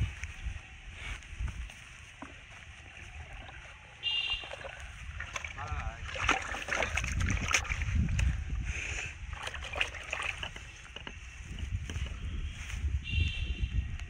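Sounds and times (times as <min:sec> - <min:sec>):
wind rumble on microphone: 0:00.0 - 0:14.0
fish splashing in water: 0:02.2 - 0:08.0, 0:09.3 - 0:10.9.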